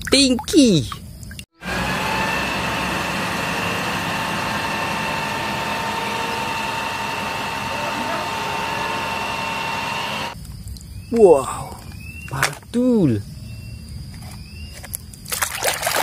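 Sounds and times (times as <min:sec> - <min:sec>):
diesel truck running: 0:01.6 - 0:10.4
steady high whine: 0:01.6 - 0:10.4
water jet rushing: 0:01.6 - 0:10.4.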